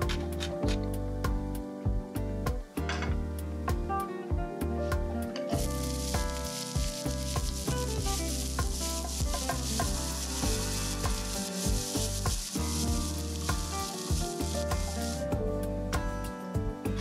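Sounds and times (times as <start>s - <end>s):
background music: 0.0s - 17.0s
onions sizzling in oil: 5.6s - 15.3s
spatula stirring in pan: 5.8s - 15.2s.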